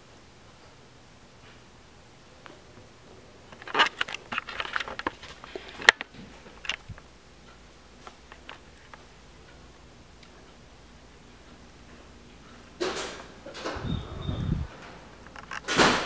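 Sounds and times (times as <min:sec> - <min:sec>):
camera handling rustling: 0:03.5 - 0:06.8.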